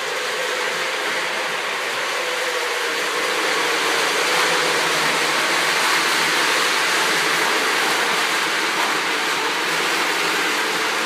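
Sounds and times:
model train running on track: 0.0s - 11.0s.

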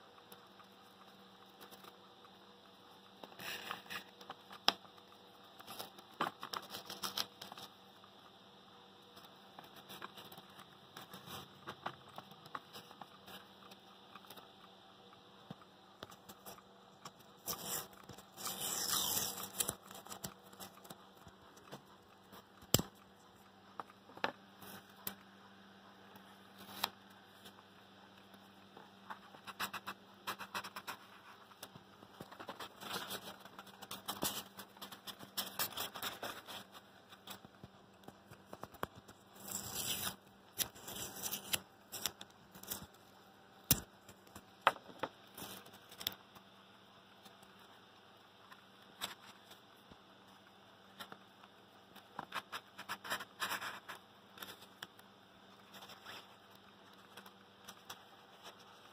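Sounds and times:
faint low hum: 0.0s - 58.9s
crinkly foil insulation rustling: 17.2s - 22.6s, 29.1s - 43.0s.

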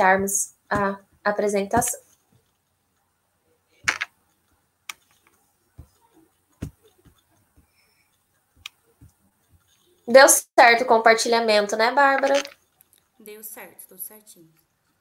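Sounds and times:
computer mouse clicks: 3.9s - 5.4s.

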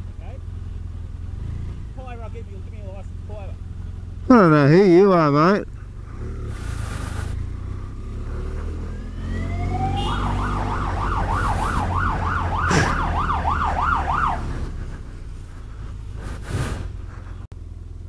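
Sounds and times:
motorcycle engine rumble: 0.0s - 18.0s
police siren wailing: 8.8s - 14.8s.

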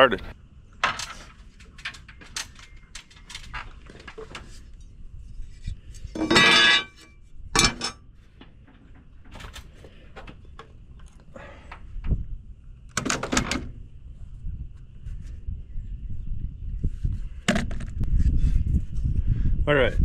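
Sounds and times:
light metallic clinks and knocks: 6.2s - 8.0s.

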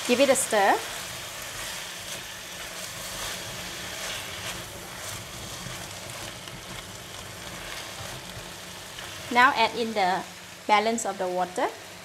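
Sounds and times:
vegetables sizzling in a wok: 0.0s - 12.0s
spatula scraping pan: 0.1s - 9.2s.

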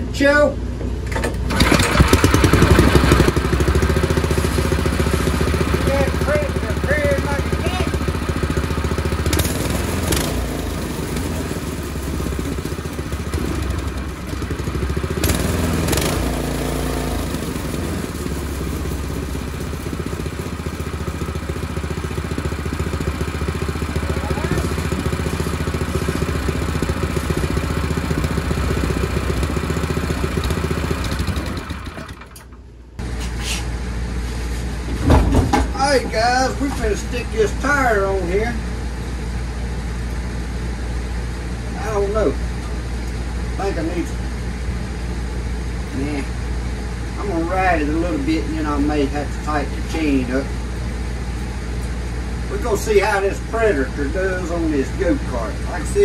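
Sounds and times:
go-kart engine running: 1.0s - 32.7s.

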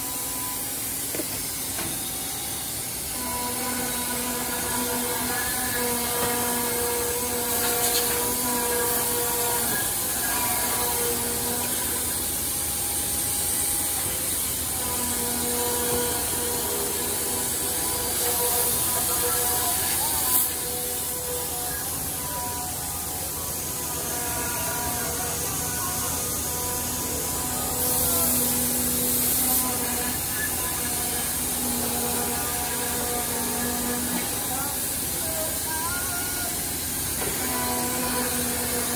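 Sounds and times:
compressed air hissing: 0.2s - 22.0s, 26.2s - 38.9s
band saw cutting wood: 3.1s - 12.6s.

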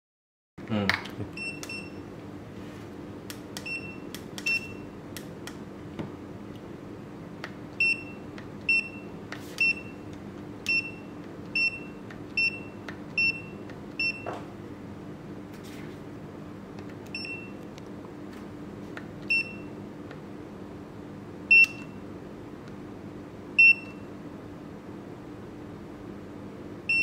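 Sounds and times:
high electronic key-press beeps: 1.4s - 2.1s, 3.6s - 5.0s, 7.8s - 14.4s, 17.1s - 17.6s, 19.2s - 19.7s, 21.5s - 22.0s, 23.6s - 24.1s.

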